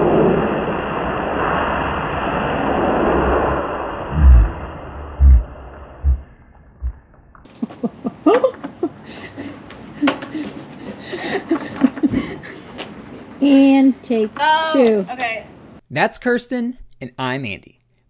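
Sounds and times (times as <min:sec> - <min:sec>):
loud low thumps: 0:04.1 - 0:07.5
voices and laughter: 0:07.5 - 0:12.8.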